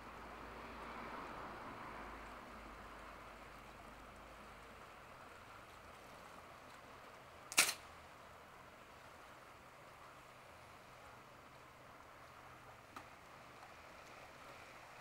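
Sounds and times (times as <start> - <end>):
faint steady hiss: 0.0 - 15.0
firework crack: 7.5 - 7.9.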